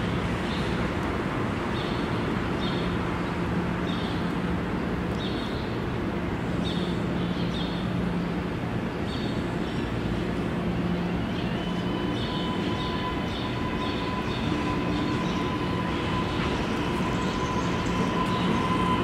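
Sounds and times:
street noise: 0.0 - 19.0
trolley humming: 6.2 - 19.0.

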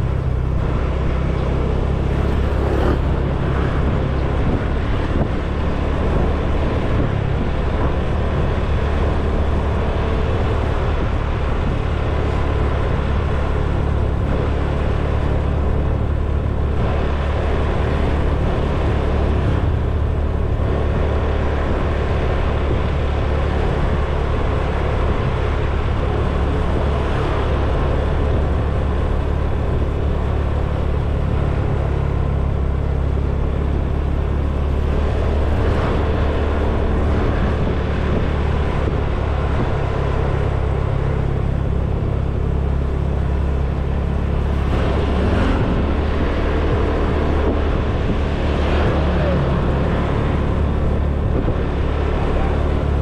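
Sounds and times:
motor scooter engine humming: 0.0 - 8.5
road and wind noise: 0.0 - 53.0.

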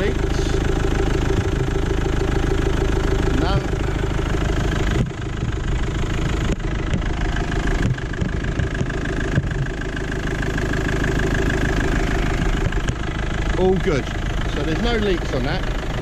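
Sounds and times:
diesel engine idling: 0.0 - 16.0
short engine knocks: 4.4 - 10.0, 12.2 - 13.1.

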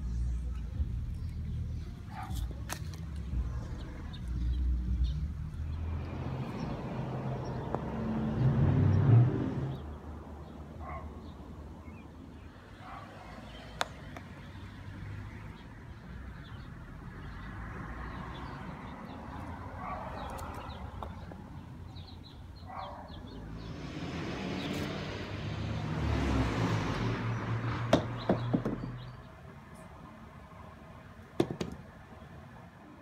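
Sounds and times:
car driving past: 5.6 - 9.9, 23.3 - 29.0.

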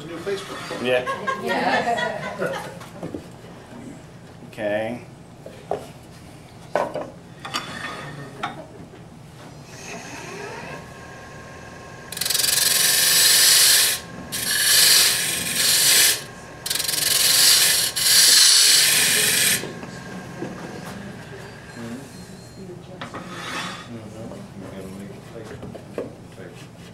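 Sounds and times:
wood lathe whine: 9.6 - 22.3
turning tool cutting wood: 9.7 - 21.7.

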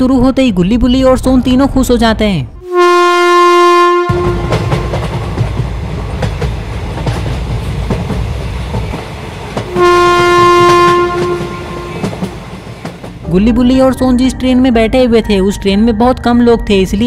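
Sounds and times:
train horn: 2.6 - 5.2, 9.7 - 12.4
train wheels clickety-clack: 4.1 - 13.3.

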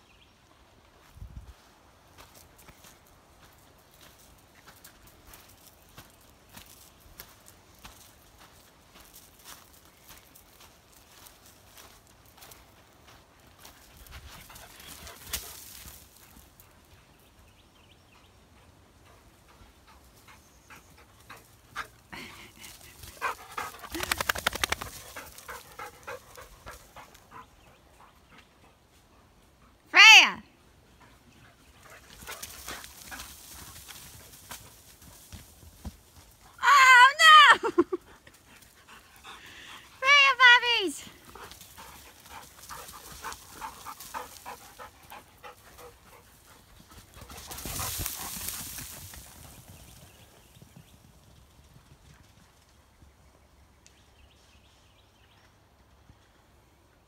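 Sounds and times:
dog panting: 18.6 - 24.2, 24.8 - 29.8, 38.0 - 40.0, 41.2 - 48.0.

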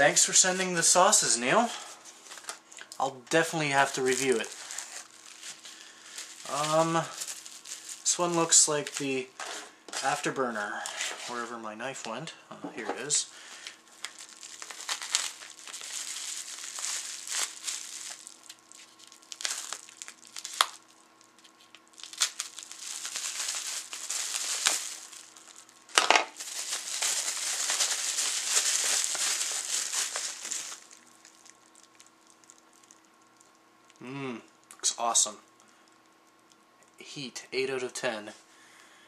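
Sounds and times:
bubble wrap crinkling: 0.4 - 11.6, 13.0 - 34.0
bubble wrap snap: 14.0 - 33.0.

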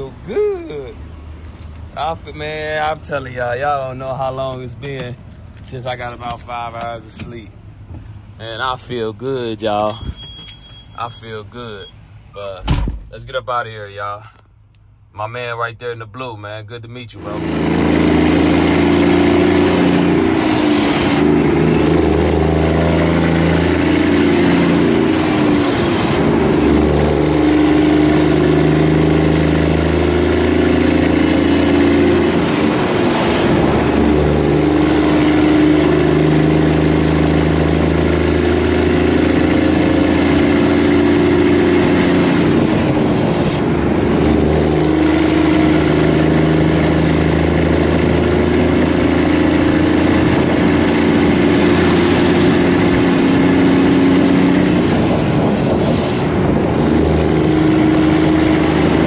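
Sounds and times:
truck diesel engine under load: 17.2 - 59.0.

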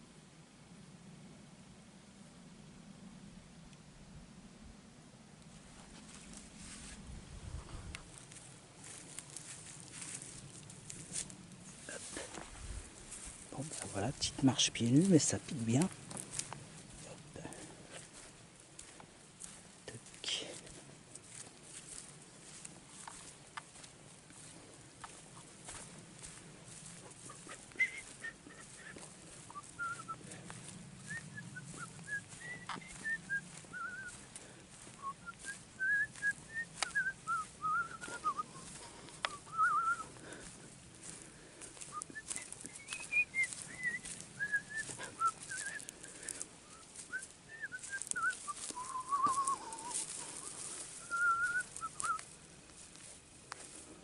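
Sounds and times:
bare feet crunching on dry grass: 5.4 - 54.0
dead stems crackling: 5.6 - 54.0
person whistling: 27.8 - 29.0, 29.8 - 30.2, 31.8 - 34.1, 35.0 - 38.6, 39.3 - 40.1, 42.0 - 45.9, 46.7 - 50.0, 51.0 - 52.2.

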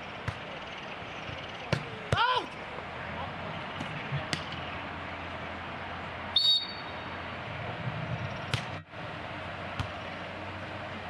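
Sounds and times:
outdoor background noise: 0.0 - 11.0
referee's whistle blast: 6.4 - 7.0.

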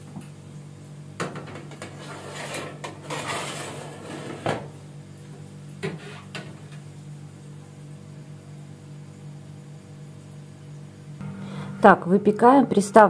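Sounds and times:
baking tray scraping on oven rack: 1.7 - 4.7, 5.8 - 6.5.

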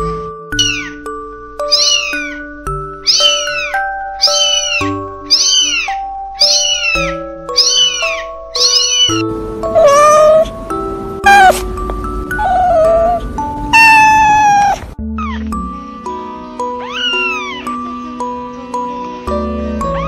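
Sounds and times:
background music with held notes: 0.0 - 20.0
adult cat meowing: 0.6 - 1.0, 1.7 - 2.4, 3.0 - 9.2, 9.8 - 10.5, 11.2 - 11.6, 12.4 - 15.4, 16.8 - 17.6
kitten mewing: 0.6 - 1.0, 1.7 - 2.4, 3.0 - 9.2, 9.8 - 10.5, 11.2 - 11.6, 13.8 - 15.4, 16.8 - 17.6.

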